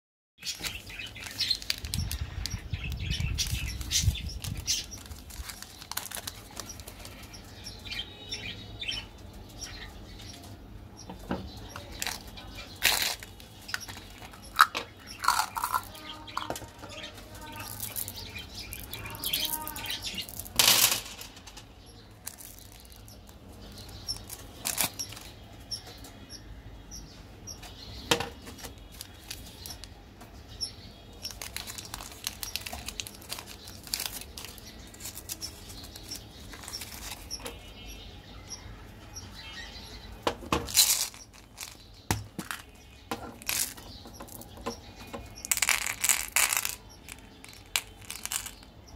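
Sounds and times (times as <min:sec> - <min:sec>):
foil wrapper crinkling: 0:00.4 - 0:07.3, 0:12.0 - 0:16.5, 0:23.8 - 0:25.3, 0:28.8 - 0:29.9, 0:31.2 - 0:37.5, 0:40.6 - 0:41.8, 0:45.4 - 0:48.6.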